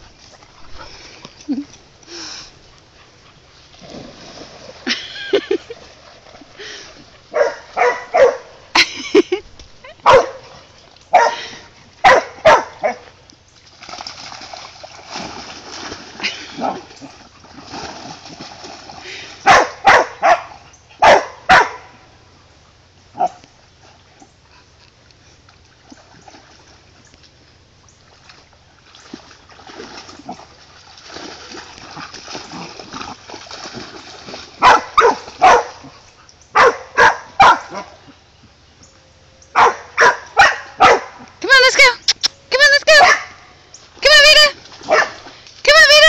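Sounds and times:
water splashing: 3.0 - 22.0, 25.2 - 38.1, 42.1 - 46.0
dogs barking: 7.3 - 8.6, 10.0 - 10.5, 11.1 - 13.1, 19.4 - 22.0, 34.6 - 38.0, 39.5 - 41.2, 43.0 - 43.4, 44.9 - 45.2.

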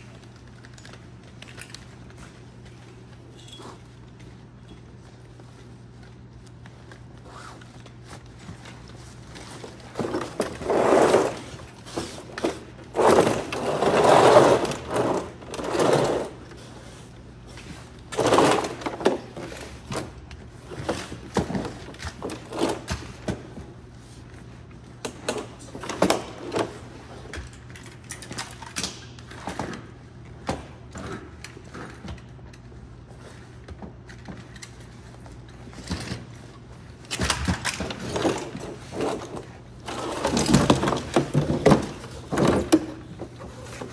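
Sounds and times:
gear scraping against floor: 9.2 - 17.0, 17.6 - 19.8, 37.8 - 43.9.

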